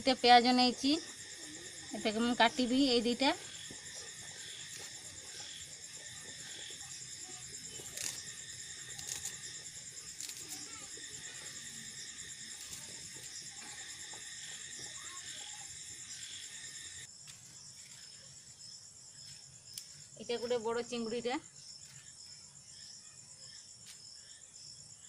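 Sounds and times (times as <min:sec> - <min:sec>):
crickets and insects chirring: 0:00.0 - 0:25.0
onions being peeled by hand: 0:03.8 - 0:15.5.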